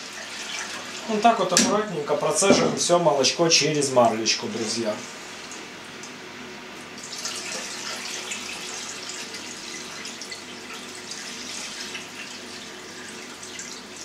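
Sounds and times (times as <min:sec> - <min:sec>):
milk pouring and splashing: 0:07.0 - 0:14.0.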